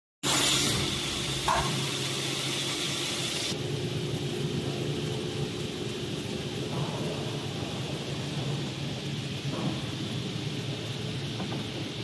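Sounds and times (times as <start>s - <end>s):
high hiss: 0.2s - 3.7s.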